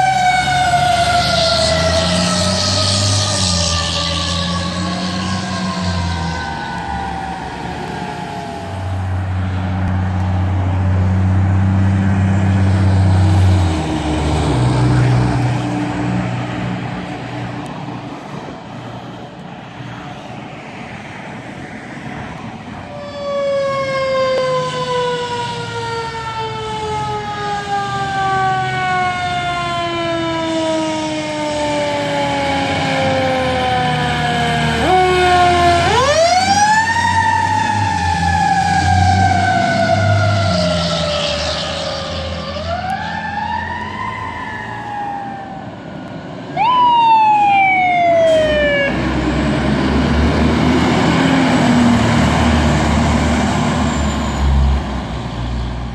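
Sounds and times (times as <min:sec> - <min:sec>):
mechanical siren wailing: 0:00.0 - 0:09.6, 0:22.9 - 0:49.3
heavy truck engine rumbling: 0:26.8 - 0:55.9.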